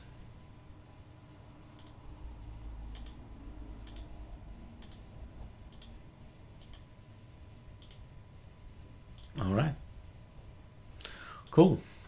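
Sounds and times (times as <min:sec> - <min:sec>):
computer mouse clicking: 0:01.8 - 0:02.0, 0:02.9 - 0:03.2, 0:03.8 - 0:04.1, 0:04.8 - 0:05.1, 0:05.7 - 0:06.0, 0:06.6 - 0:06.9, 0:07.8 - 0:08.1.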